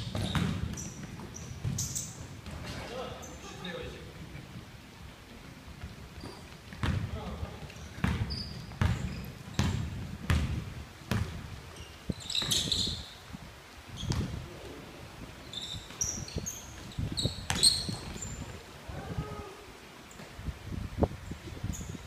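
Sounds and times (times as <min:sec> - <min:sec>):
basketball dribbled on hardwood floor: 0:00.0 - 0:02.6, 0:06.3 - 0:07.1, 0:08.0 - 0:11.3
sneakers squeaking: 0:00.0 - 0:03.6, 0:05.8 - 0:13.2, 0:13.9 - 0:14.4, 0:15.4 - 0:18.6, 0:21.6 - 0:22.0.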